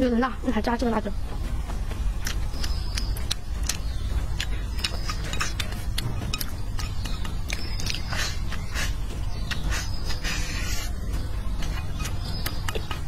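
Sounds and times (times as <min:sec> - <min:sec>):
steady low rumble: 0:00.0 - 0:13.0
wet chewing mouth clicks: 0:02.2 - 0:10.9, 0:11.6 - 0:13.0.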